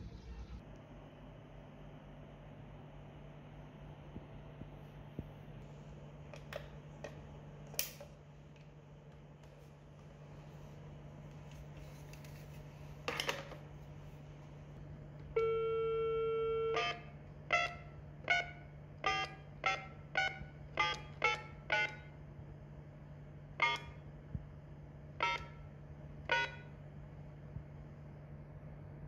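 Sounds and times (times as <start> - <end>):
phone dial tone: 15.4 - 17.7
keypad tones: 15.4 - 22.1, 25.2 - 25.6, 26.3 - 26.7.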